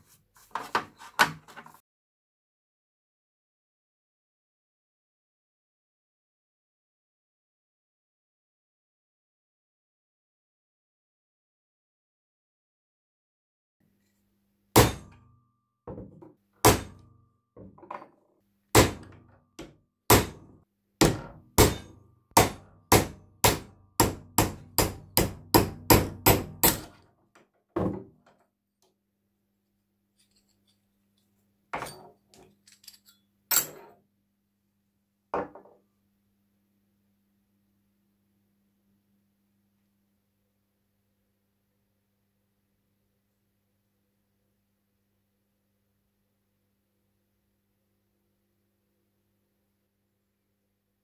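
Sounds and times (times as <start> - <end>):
hammer striking metal punch: 14.8 - 15.3, 16.6 - 17.1, 18.8 - 19.2, 20.1 - 27.0.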